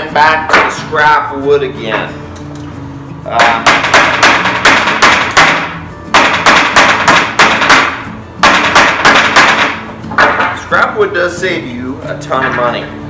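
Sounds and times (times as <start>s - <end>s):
hammer blows on wood board: 3.3s - 10.5s.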